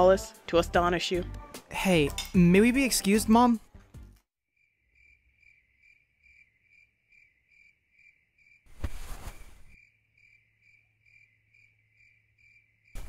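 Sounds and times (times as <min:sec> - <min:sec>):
crickets chirping: 0:04.6 - 0:13.0.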